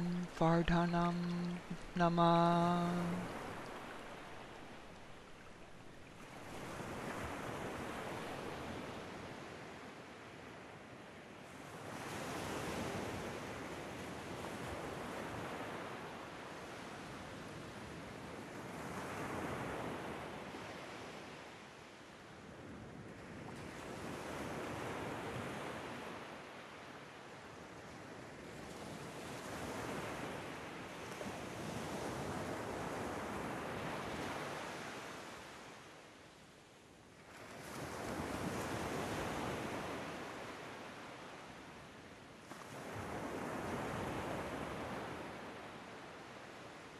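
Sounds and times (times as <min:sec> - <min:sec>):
ocean waves washing: 0:00.0 - 0:09.2.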